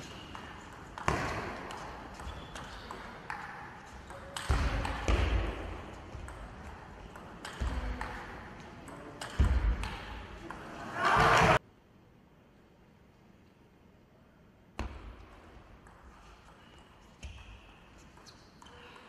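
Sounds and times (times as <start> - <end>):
crowd noise: 10.1 - 11.6.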